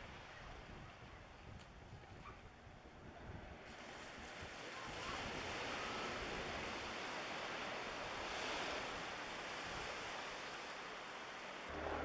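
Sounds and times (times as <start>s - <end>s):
wind rumble on microphone: 0.0s - 12.0s
surf hissing on shore: 3.6s - 12.0s.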